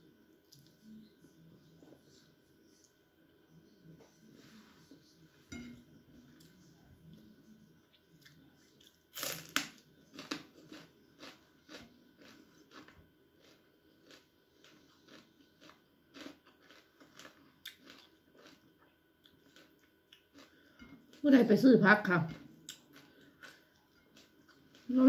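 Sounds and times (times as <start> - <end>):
person chewing with crisp crunches: 8.0 - 21.2, 22.3 - 25.0.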